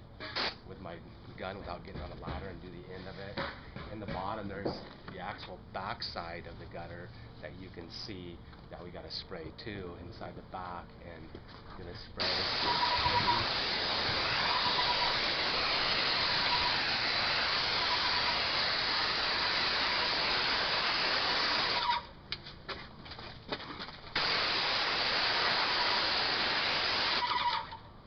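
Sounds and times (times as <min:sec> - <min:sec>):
paint sprayer hissing: 0:12.2 - 0:21.9, 0:24.2 - 0:27.3.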